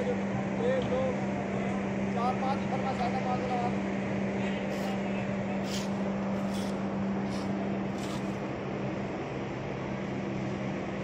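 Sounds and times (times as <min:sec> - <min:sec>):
small engine humming steadily: 0:00.0 - 0:11.0
short hissing noises: 0:04.7 - 0:08.4.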